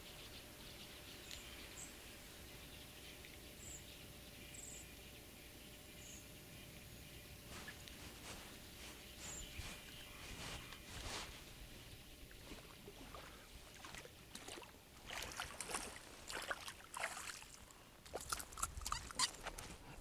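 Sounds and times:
rustling: 0:07.4 - 0:12.7
fish splashing in water: 0:12.4 - 0:19.5.

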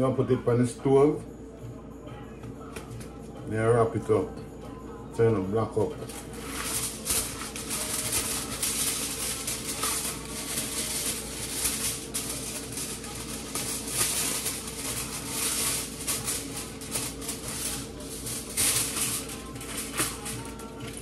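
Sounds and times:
aluminium foil crinkling: 0:06.0 - 0:21.0.

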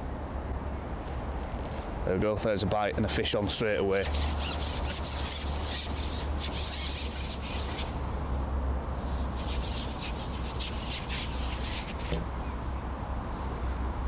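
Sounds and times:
rustling reeds and trees: 0:03.0 - 0:12.7.

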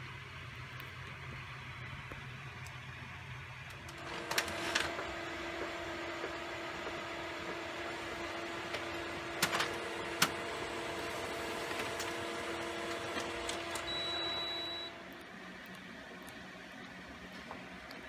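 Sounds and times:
laser printer motor hum: 0:03.4 - 0:18.0
paper mechanism clicks: 0:03.7 - 0:05.1, 0:07.5 - 0:14.1.

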